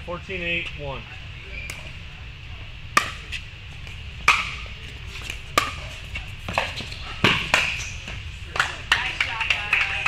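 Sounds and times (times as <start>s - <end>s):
paddle hitting pickleball: 2.9s - 9.3s.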